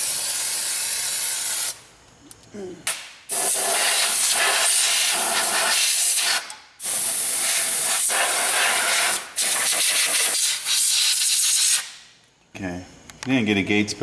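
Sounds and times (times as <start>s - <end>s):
compressed air blow gun hissing: 0.0s - 1.8s, 3.3s - 12.0s.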